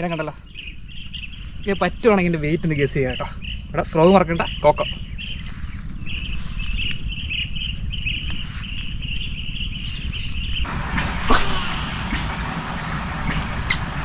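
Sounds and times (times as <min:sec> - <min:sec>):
insects chirping trill: 0:00.0 - 0:14.0
rushing noise: 0:10.6 - 0:14.0.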